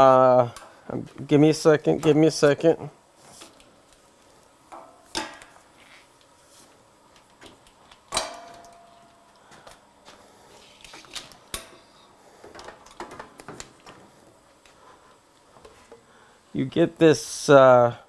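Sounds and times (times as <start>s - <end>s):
metal clank with ring: 8.2s - 9.0s
objects knocking and clattering: 11.6s - 14.1s.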